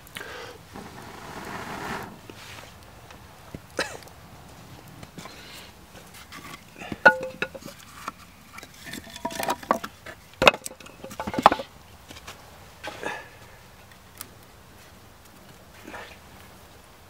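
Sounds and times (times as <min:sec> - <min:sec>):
wooden sticks knocking together: 0:06.9 - 0:11.7.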